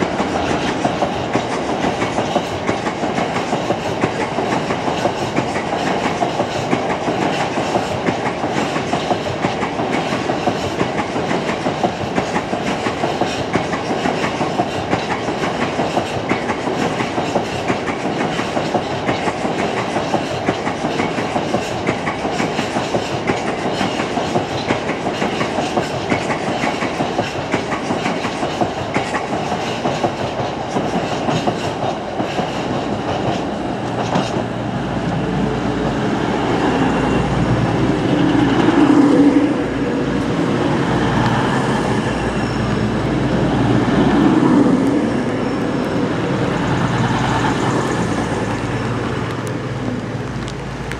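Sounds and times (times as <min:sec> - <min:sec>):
diesel train engine humming: 0:32.9 - 0:50.9.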